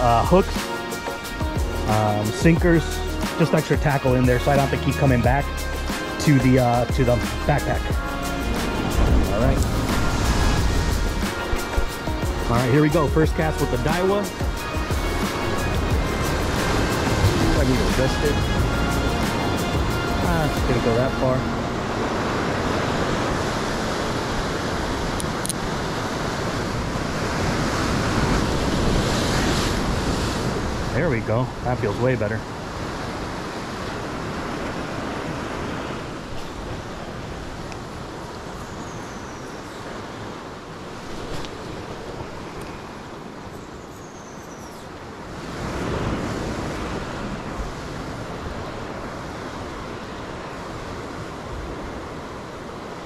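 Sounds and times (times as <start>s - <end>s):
ocean surf breaking over rocks: 0.0s - 44.0s, 44.7s - 53.0s
wind on microphone: 6.8s - 12.5s, 13.3s - 31.6s.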